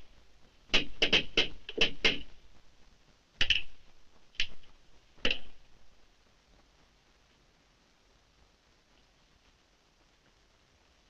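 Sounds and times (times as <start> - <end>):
sharp knocks and clicks: 0.7 - 2.4, 3.4 - 5.6.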